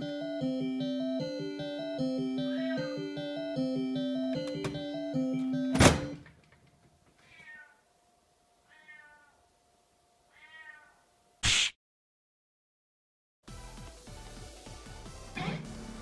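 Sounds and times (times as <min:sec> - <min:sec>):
music: 0:00.0 - 0:06.2, 0:13.4 - 0:16.0
cat meowing: 0:07.2 - 0:07.9, 0:08.6 - 0:09.4, 0:10.3 - 0:11.1.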